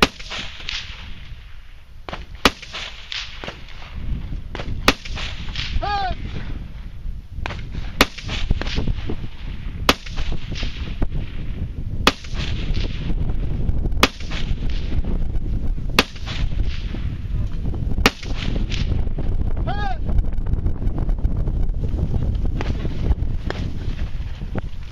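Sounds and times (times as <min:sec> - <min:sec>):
gunshots: 0:00.0 - 0:01.2, 0:02.1 - 0:03.9, 0:04.6 - 0:06.4, 0:07.5 - 0:13.2, 0:14.0 - 0:15.0, 0:16.0 - 0:17.0, 0:18.0 - 0:19.0
low rumble: 0:10.7 - 0:24.9.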